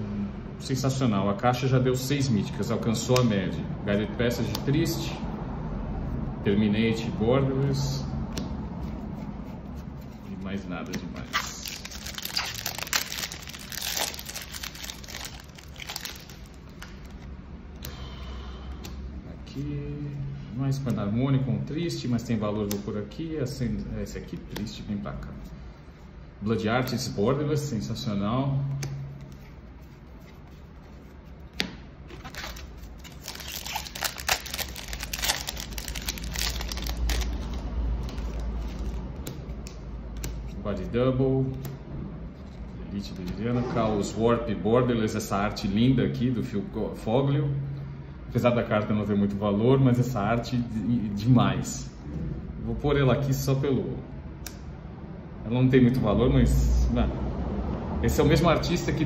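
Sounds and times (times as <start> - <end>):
foil wrapper tearing and crinkling: 11.2 - 17.2, 32.1 - 38.9.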